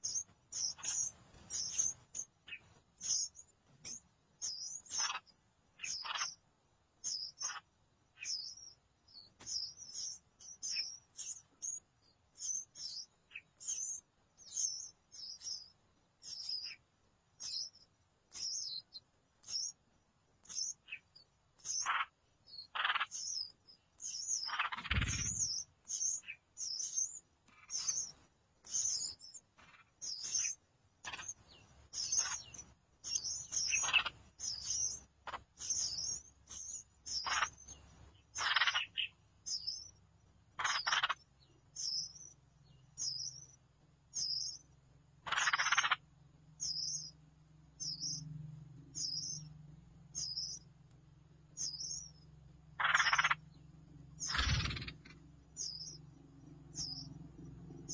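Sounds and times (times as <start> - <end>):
nestling birds chirping: 0.0 - 57.9
harsh bird call: 24.4 - 26.8, 52.8 - 53.5, 54.2 - 56.0.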